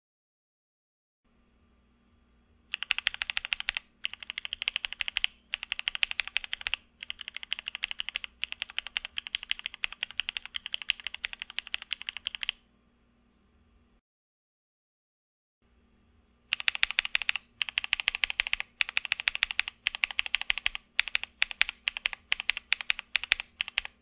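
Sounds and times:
mechanical keyboard keystrokes: 2.7s - 12.6s, 16.5s - 24.0s.

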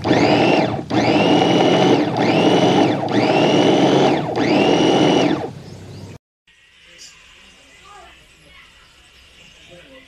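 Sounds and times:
blades chopping food: 0.0s - 5.5s
electric grinder motor whine: 0.0s - 5.6s.

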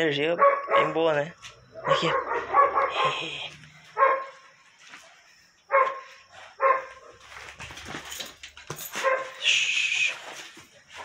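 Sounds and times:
dog barking: 0.4s - 1.1s, 1.7s - 4.4s, 5.7s - 7.3s, 9.0s - 9.4s
scuffling and rag noise: 2.2s - 11.0s.

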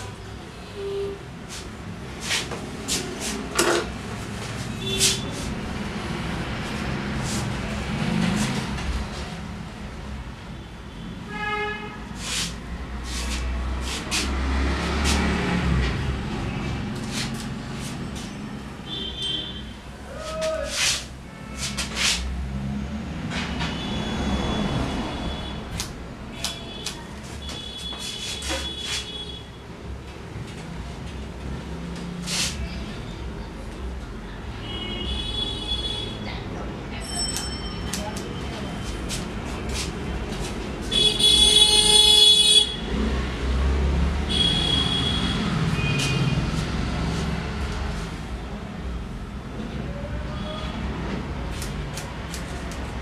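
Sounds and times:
low traffic rumble: 0.0s - 53.0s
vehicle horn honking: 10.9s - 12.1s, 18.8s - 19.8s, 40.9s - 42.9s, 44.3s - 46.4s
scissors snipping hair: 25.8s - 27.0s, 51.5s - 53.0s.

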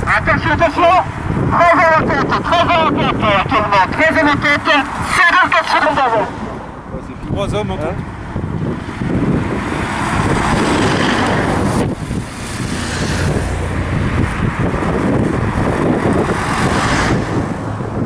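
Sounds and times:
cars passing close by: 0.0s - 18.0s.

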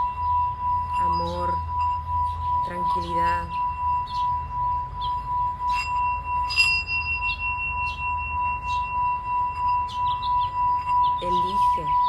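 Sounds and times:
singing bowl ringing tone: 0.0s - 12.0s
mallet clinking against bowl rim: 5.6s - 12.0s.

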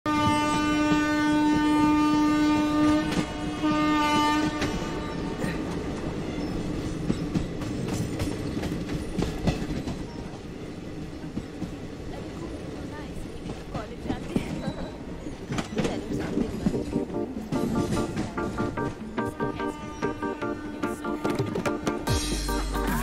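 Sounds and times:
train horn blasts: 0.1s - 5.4s, 17.5s - 22.5s
train rumbling: 0.1s - 23.0s
wheels clattering over rail joints: 5.8s - 10.6s.

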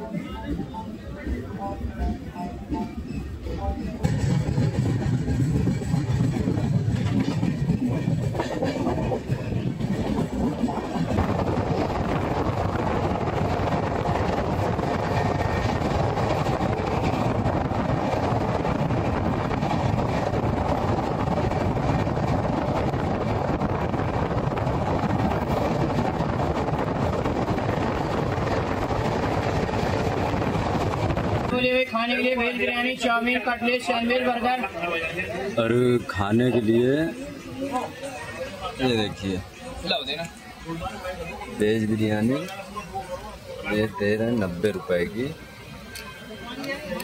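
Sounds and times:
train running on track: 0.0s - 47.0s.

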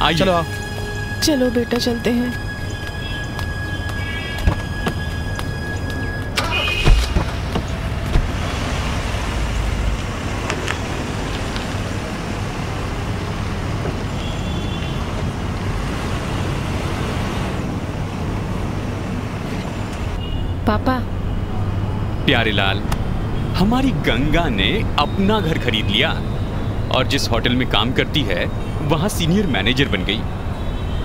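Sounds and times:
car engine running: 4.3s - 11.5s
car doors shutting: 6.3s - 8.7s.

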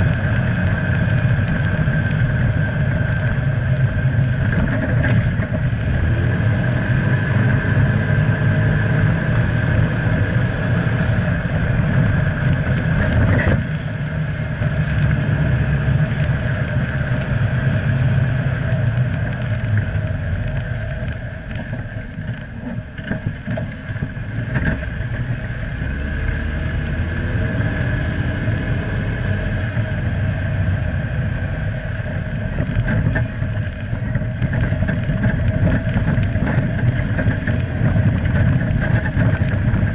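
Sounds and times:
tyres and drivetrain rumbling: 0.0s - 39.9s.

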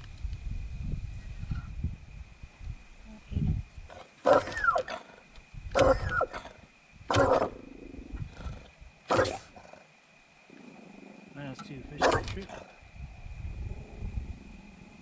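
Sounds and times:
animal making harsh calls: 3.9s - 5.2s, 5.8s - 7.6s, 8.4s - 9.8s, 12.0s - 12.7s.

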